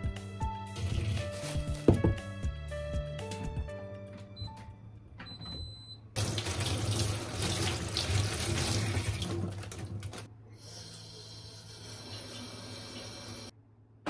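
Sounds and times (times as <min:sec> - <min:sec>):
rice cooker beep: 0:05.3 - 0:06.1
tap water splashing in sink: 0:06.2 - 0:10.2
water stream filling tray: 0:06.2 - 0:10.3.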